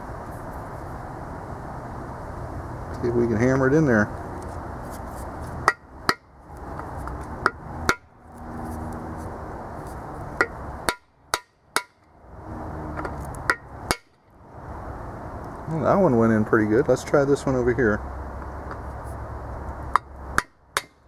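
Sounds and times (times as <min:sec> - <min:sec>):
hammer striking metal: 0:05.6 - 0:06.3, 0:07.4 - 0:08.1, 0:10.4 - 0:12.0, 0:13.5 - 0:14.2.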